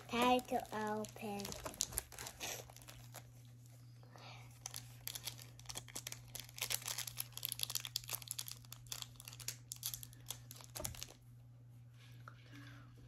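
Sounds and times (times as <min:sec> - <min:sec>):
foil wrapper tearing and crinkling: 0:00.0 - 0:03.3, 0:04.6 - 0:11.2.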